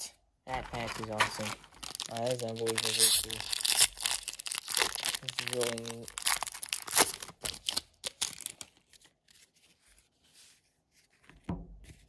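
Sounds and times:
plastic wrapper tearing: 0:00.5 - 0:09.2.

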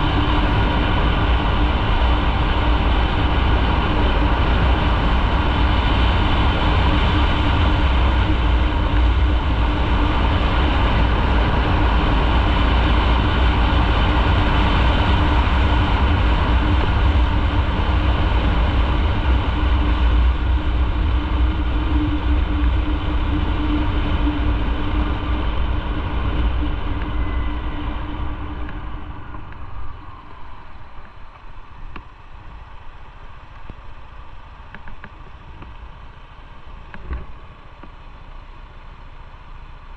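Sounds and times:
motorcycle engine running: 0:00.0 - 0:39.9
road noise: 0:00.0 - 0:39.9.

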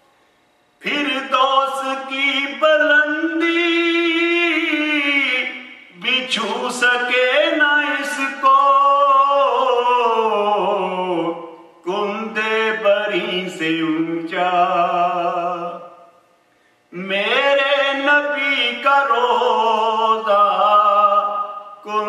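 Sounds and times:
man singing unaccompanied hymn: 0:00.8 - 0:16.1, 0:16.9 - 0:22.0.

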